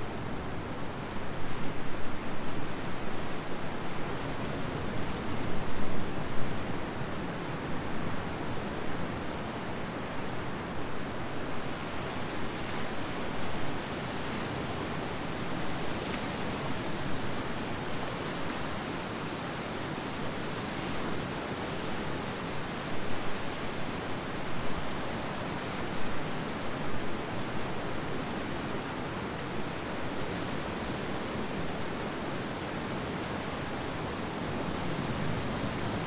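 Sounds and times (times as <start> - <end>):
ocean waves breaking on beach: 0.1 - 36.0.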